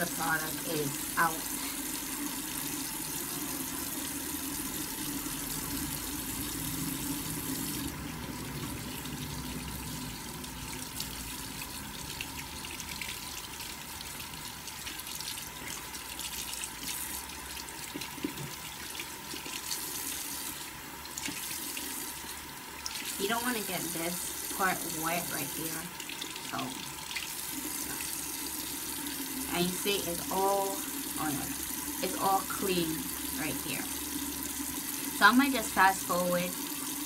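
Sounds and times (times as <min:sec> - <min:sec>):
tap running into sink: 0:17.8 - 0:18.7.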